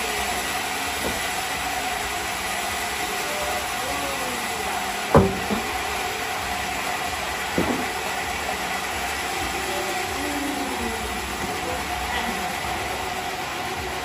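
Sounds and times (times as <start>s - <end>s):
steady machine hum: 0.0s - 14.0s
wooden plank knocking on timber: 5.1s - 5.7s, 7.6s - 7.8s.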